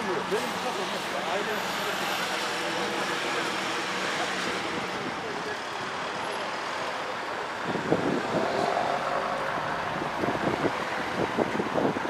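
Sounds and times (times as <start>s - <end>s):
passing cars hum: 0.0s - 12.0s
wind on microphone: 7.6s - 12.0s.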